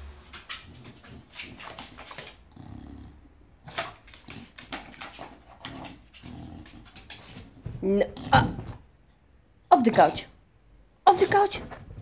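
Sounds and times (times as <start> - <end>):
dog growling: 0.5 - 8.8.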